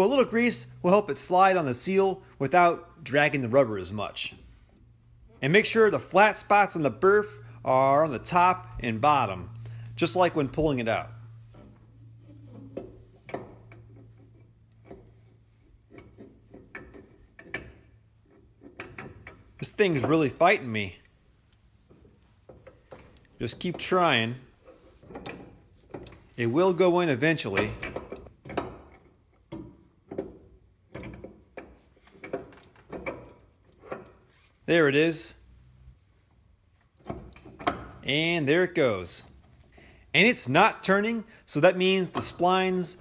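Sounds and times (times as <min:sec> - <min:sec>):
steady low hum: 0:06.8 - 0:15.9
metal clunks and knocks: 0:37.0 - 0:38.1.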